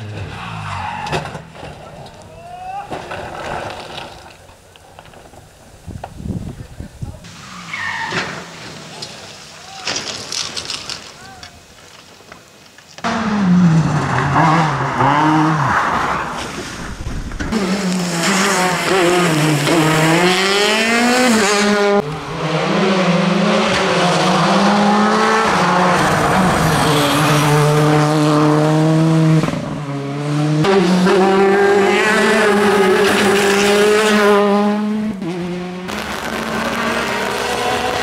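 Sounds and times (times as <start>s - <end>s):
rally car engines revving hard: 13.0s - 16.6s, 17.4s - 38.0s.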